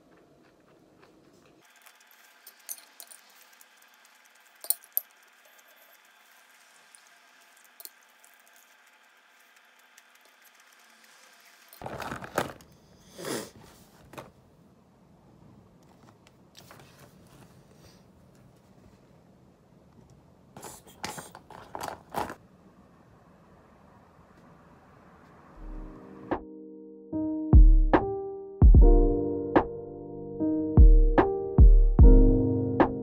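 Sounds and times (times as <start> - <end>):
pencil case contents rattling: 11.8 - 12.7, 20.6 - 22.4
objects moved on desk: 20.6 - 22.4.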